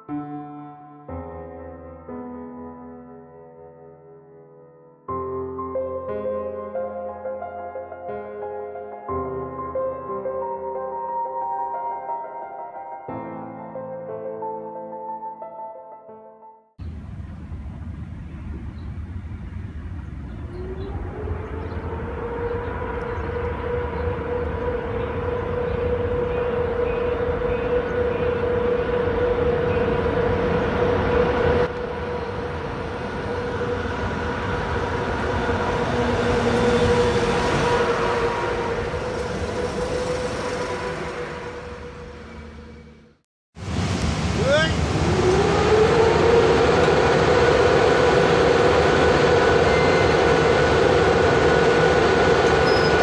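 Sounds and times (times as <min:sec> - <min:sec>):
train rumbling past: 0:16.8 - 0:53.0
steady whine: 0:16.9 - 0:43.2, 0:44.2 - 0:53.0.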